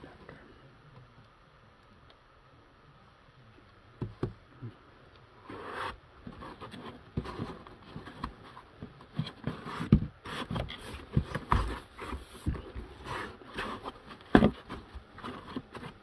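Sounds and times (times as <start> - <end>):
items rubbing in cardboard box: 5.4 - 16.0.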